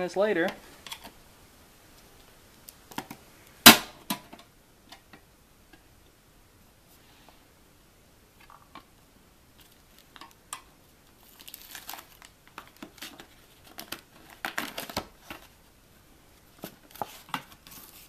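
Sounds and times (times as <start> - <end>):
sheet metal lid crinkling: 11.3 - 15.6.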